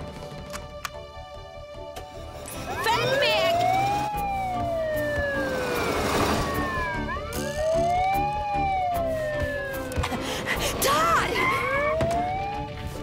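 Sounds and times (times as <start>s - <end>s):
background music with steady pulse: 0.0s - 13.0s
cartoon fire engine siren wailing: 2.8s - 10.1s, 11.0s - 13.0s.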